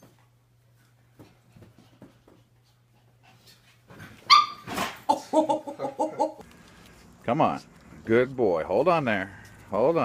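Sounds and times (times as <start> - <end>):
dog yelping: 4.2 - 4.8.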